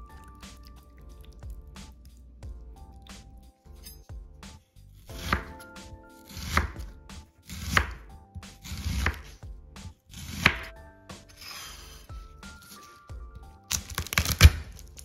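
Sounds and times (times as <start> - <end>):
knife slicing onion: 3.1 - 13.0, 13.7 - 15.0.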